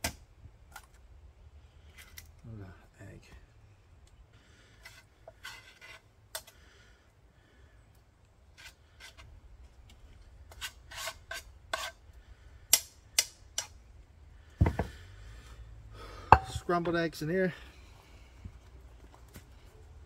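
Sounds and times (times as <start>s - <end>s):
utensil scraping a frying pan: 4.8s - 6.1s, 10.5s - 12.0s.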